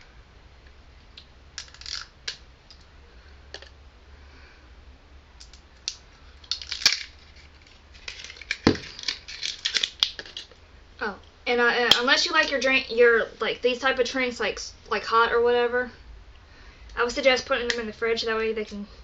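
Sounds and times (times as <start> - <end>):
plastic wrapping crinkling: 5.4 - 10.6.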